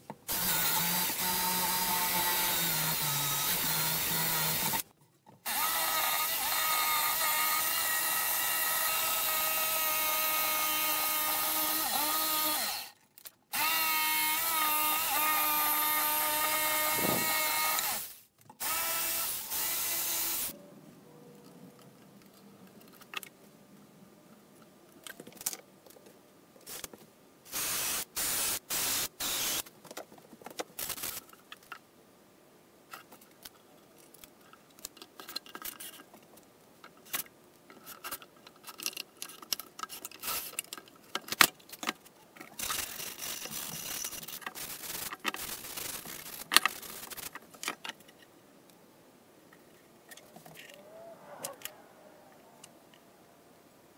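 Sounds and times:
jigsaw cutting plywood: 13.6s - 20.5s
knocking and scraping of parts: 32.9s - 48.3s, 49.6s - 50.8s.

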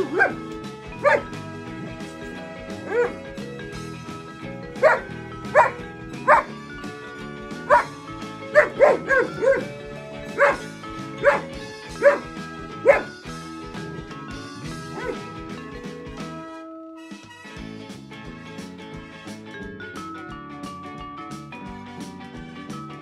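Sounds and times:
dog barking: 0.0s - 0.4s, 1.0s - 1.3s, 2.8s - 3.2s, 4.8s - 6.5s, 7.7s - 9.7s, 10.4s - 13.2s, 14.9s - 15.2s
background music: 0.0s - 23.0s.

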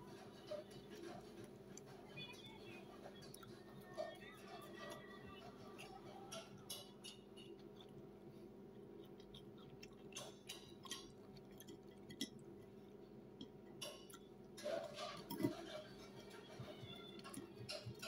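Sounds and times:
person chewing: 3.2s - 15.9s
metal fork scraping on plate: 14.6s - 16.6s.

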